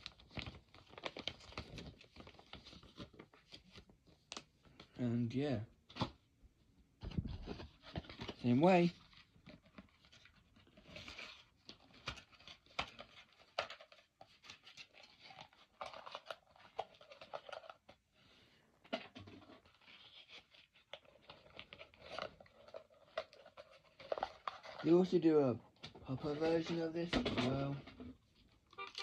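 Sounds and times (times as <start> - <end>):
toy packaging rustling: 0.0 - 4.9, 7.0 - 18.2, 18.8 - 29.0.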